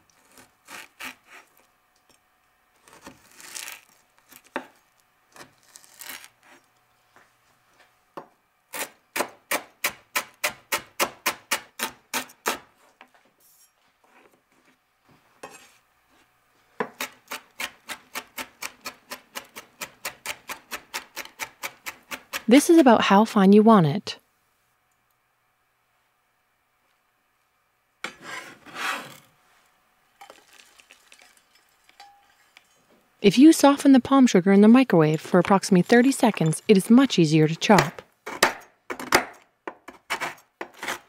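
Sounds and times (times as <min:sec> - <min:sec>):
knife scraping cuts: 0:00.1 - 0:01.6, 0:02.8 - 0:04.6, 0:05.4 - 0:06.6, 0:28.0 - 0:29.3, 0:39.8 - 0:41.0
knife chopping on cutting board: 0:37.7 - 0:41.0.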